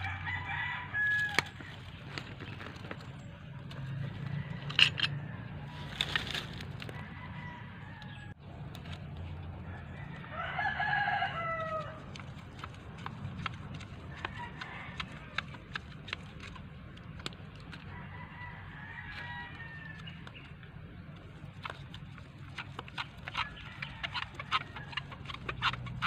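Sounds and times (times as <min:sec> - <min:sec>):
rooster crowing: 0:00.0 - 0:01.8, 0:03.9 - 0:05.8, 0:06.9 - 0:08.4, 0:09.6 - 0:12.0, 0:17.9 - 0:20.2.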